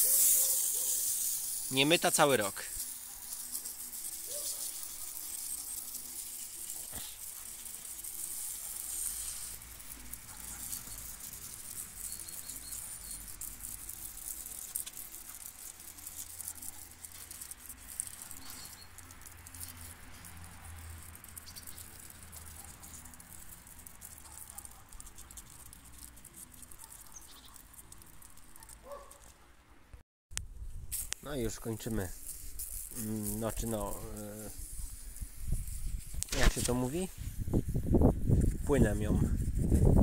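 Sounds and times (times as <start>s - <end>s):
pressure washer jet hissing: 0.0s - 22.3s.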